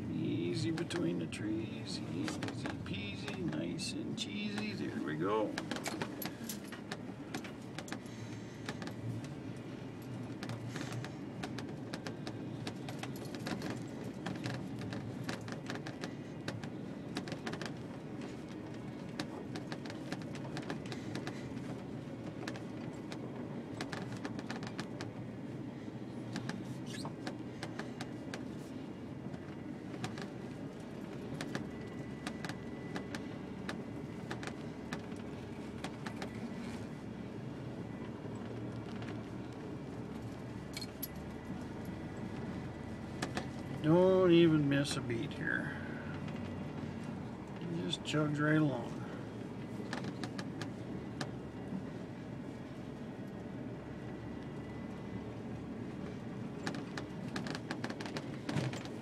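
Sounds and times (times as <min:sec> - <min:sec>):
truck engine drone: 0:00.0 - 0:59.0
small clicks and rattles: 0:04.3 - 0:25.2, 0:26.2 - 0:36.9, 0:49.0 - 0:52.0, 0:55.9 - 0:59.0.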